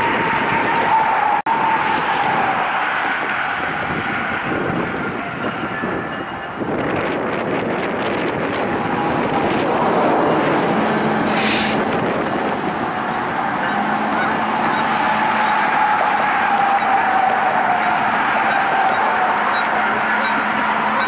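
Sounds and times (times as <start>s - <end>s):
freight train rolling past: 0.0s - 21.0s
geese honking: 13.0s - 21.0s.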